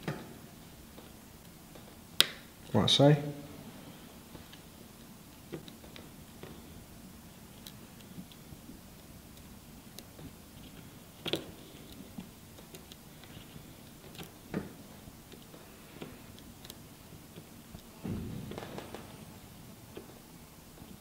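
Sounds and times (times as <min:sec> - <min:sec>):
handling noise: 0:17.4 - 0:21.0.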